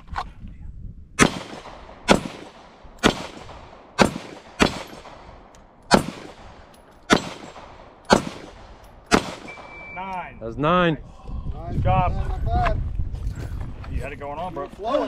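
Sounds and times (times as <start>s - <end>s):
pistol shots echoing: 1.2s - 9.8s.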